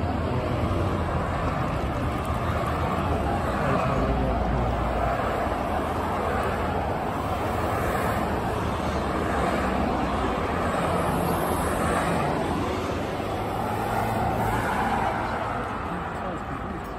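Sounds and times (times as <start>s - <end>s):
vehicles driving past: 0.0s - 16.9s.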